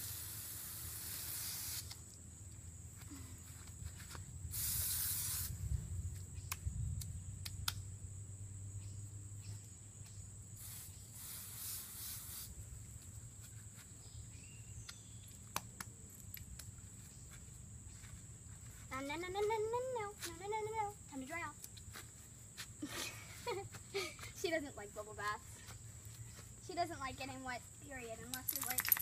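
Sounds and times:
hose nozzle spraying water: 0.0s - 2.1s, 4.5s - 5.6s, 28.4s - 29.0s.

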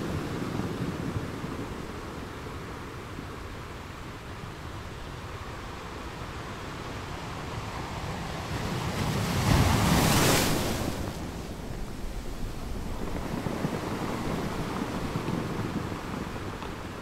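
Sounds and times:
sea waves on shore: 0.0s - 17.0s
wave breaking: 9.0s - 12.1s.

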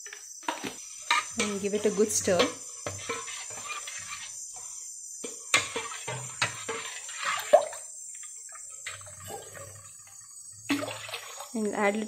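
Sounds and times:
liquid batter swishing: 5.6s - 7.6s.

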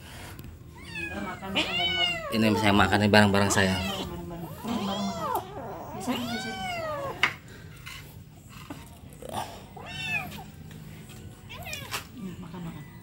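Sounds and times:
kitten meowing: 0.8s - 7.2s.

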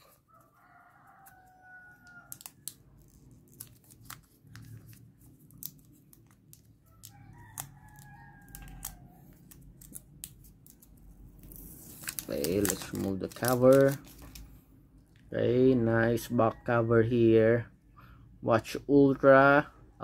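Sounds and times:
distant rooster crowing: 0.0s - 2.6s, 6.9s - 9.5s
plastic film crinkling: 1.1s - 14.6s
fingernails scratching plastic film: 2.1s - 14.4s.

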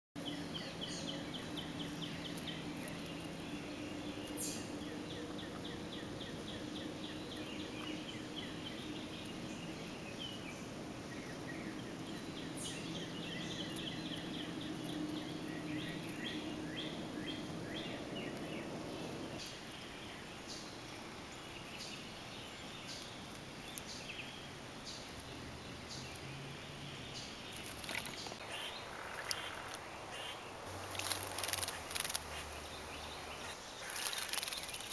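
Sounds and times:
steady low hum: 0.2s - 19.4s
small birds chirping: 0.2s - 34.9s.

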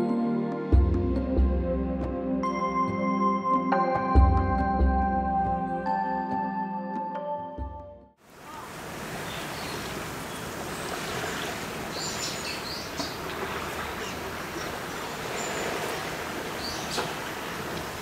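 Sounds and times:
background music: 0.0s - 8.2s
sea waves washing on rocks: 8.6s - 18.0s.

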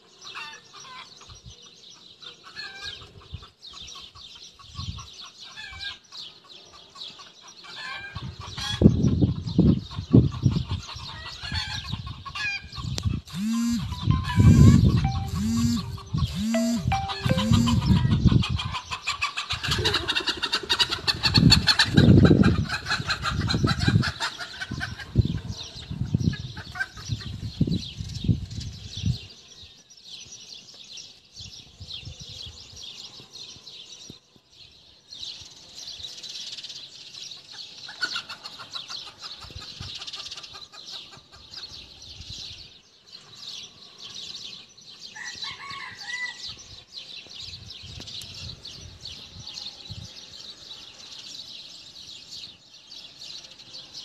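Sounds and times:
chickens clucking and squawking: 2.0s - 27.6s, 37.3s - 42.0s
steady high chirring: 13.3s - 18.0s.

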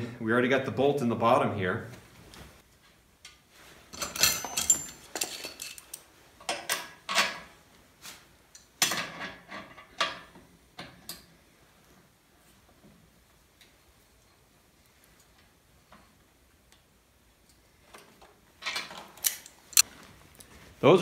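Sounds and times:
metallic clinks of washers and nut: 3.9s - 7.4s.

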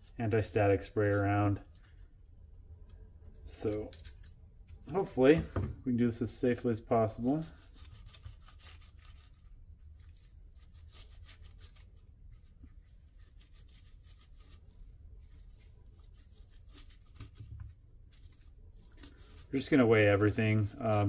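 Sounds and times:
paper wrapping tearing and crinkling: 0.4s - 2.0s, 3.3s - 4.4s, 7.2s - 21.0s.

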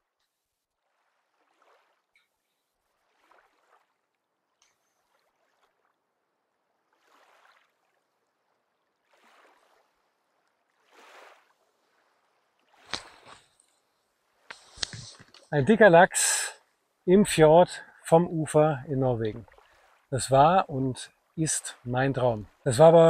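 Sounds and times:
small waves lapping against rocks: 0.7s - 15.5s, 19.3s - 20.1s.

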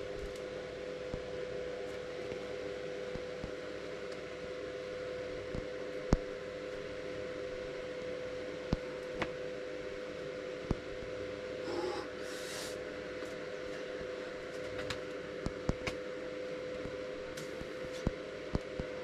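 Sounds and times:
faint steady hum: 0.0s - 19.0s
short hissing rush: 11.7s - 12.8s
outdoor hiss: 12.2s - 12.8s.

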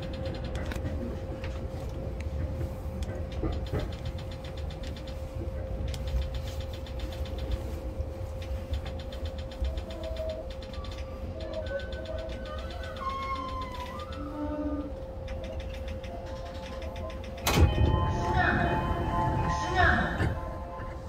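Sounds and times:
train wheels rumbling on track: 0.0s - 21.0s
faint rapid ticking: 3.3s - 14.4s
steady tone: 17.4s - 21.0s.

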